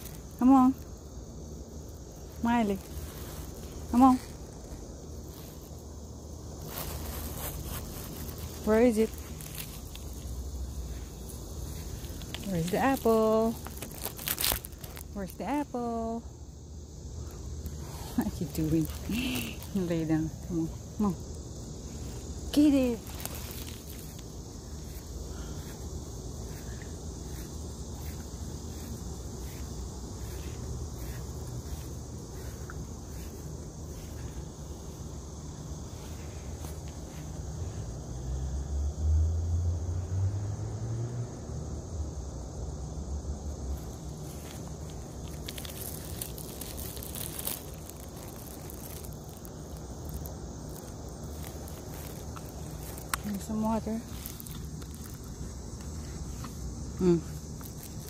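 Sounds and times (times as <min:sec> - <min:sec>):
insects chirping: 0:00.0 - 0:58.0
dog rustling on grass: 0:01.8 - 0:15.2, 0:21.8 - 0:25.8, 0:43.7 - 0:56.1.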